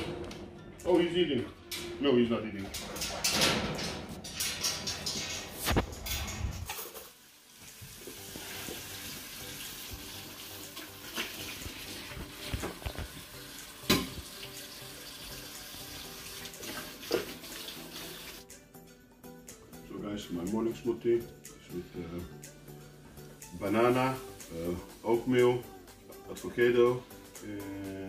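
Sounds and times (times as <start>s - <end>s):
tap running into a sink: 9.8s - 14.6s, 16.5s - 18.1s.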